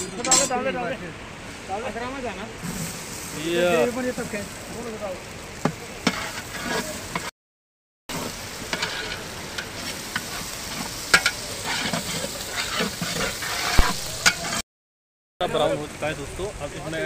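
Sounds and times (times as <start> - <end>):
paste sizzling in hot oil: 1.5 - 7.3, 8.1 - 14.6
ladle scraping metal pot: 6.0 - 7.3, 8.2 - 14.6.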